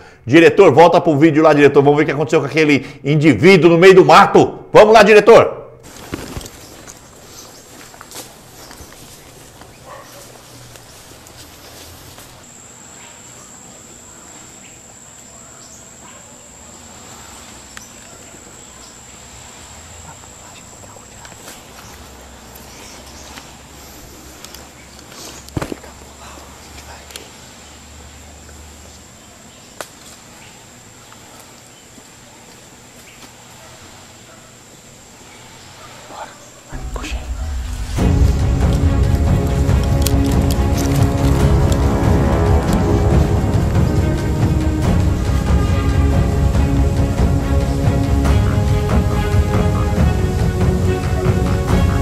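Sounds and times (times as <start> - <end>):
steady high-pitched whine: 5.8 - 33.0, 36.6 - 52.0
high-pitched insect drone: 10.4 - 24.8, 36.8 - 52.0.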